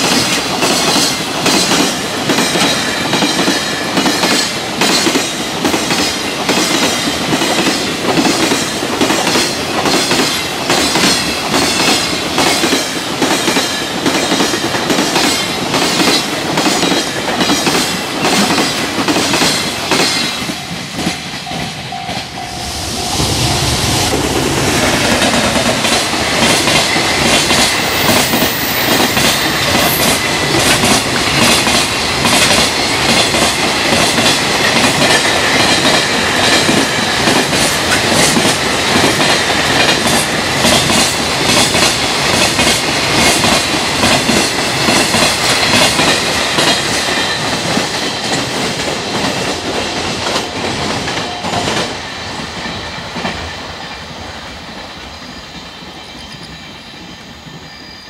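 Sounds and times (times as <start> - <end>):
train wheels clacking over rail joints: 0.0 - 21.7, 24.1 - 52.0
steady high tone: 20.4 - 30.6.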